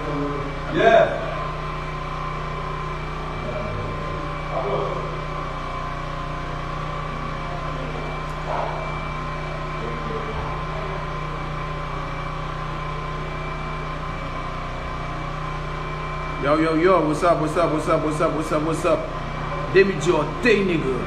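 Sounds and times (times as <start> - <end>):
steady machine hum: 0.0 - 21.0.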